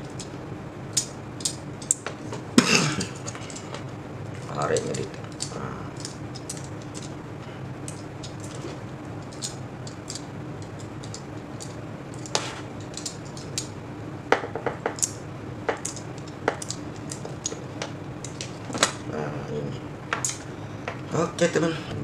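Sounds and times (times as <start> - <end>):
steady low hum: 0.0 - 22.0
blade scraping wire: 4.4 - 13.8.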